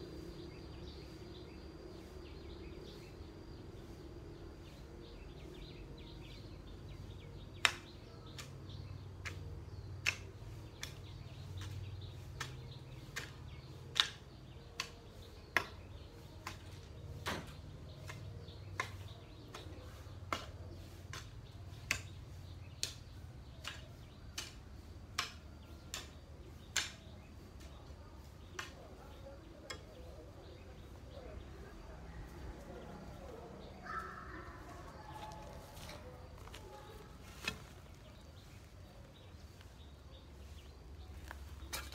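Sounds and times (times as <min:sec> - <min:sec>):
cutting tool chopping weeds: 0:05.5 - 0:30.6, 0:35.8 - 0:38.6.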